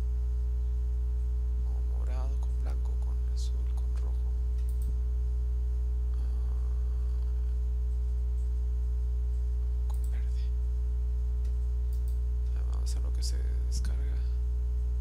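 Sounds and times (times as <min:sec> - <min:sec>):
electrical mains hum: 0:00.0 - 0:15.0
faint mouse clicks: 0:03.7 - 0:05.0, 0:09.9 - 0:10.4, 0:11.4 - 0:12.6.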